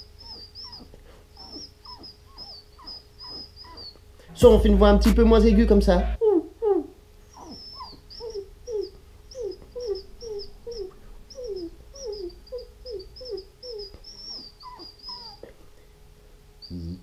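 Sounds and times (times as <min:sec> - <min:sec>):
man imitating a crying dog: 0:04.4 - 0:07.0.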